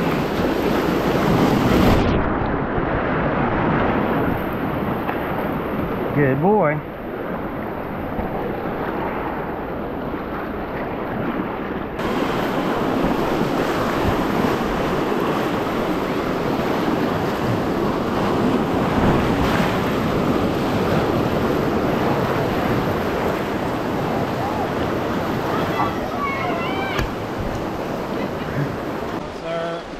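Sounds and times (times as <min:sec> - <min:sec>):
wind on microphone: 0:00.0 - 0:06.2, 0:06.8 - 0:29.3
whitewater rapids rushing: 0:12.0 - 0:29.9.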